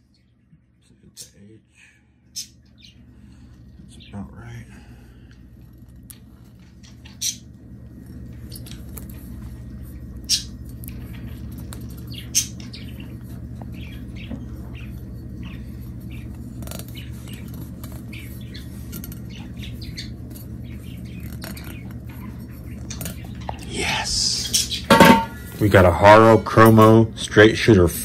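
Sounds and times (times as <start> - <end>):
low hum: 0.0 - 28.0.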